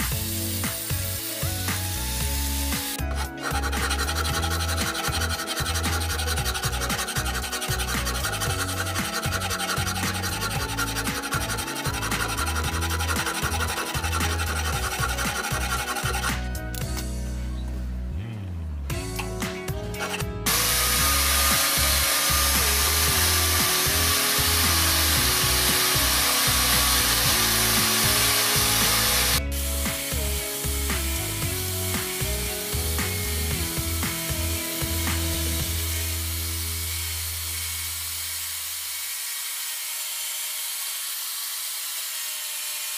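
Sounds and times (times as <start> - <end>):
angle grinder grinding metal: 0.0 - 16.9, 19.0 - 42.9
background music: 0.0 - 37.7
metal file rasping on steel: 2.7 - 16.7, 20.0 - 29.4.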